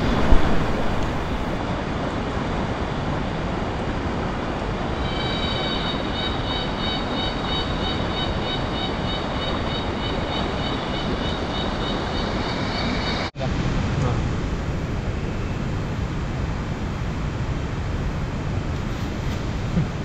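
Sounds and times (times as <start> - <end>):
river rushing over boulders: 0.0 - 5.0
high pulsing call: 5.0 - 13.3.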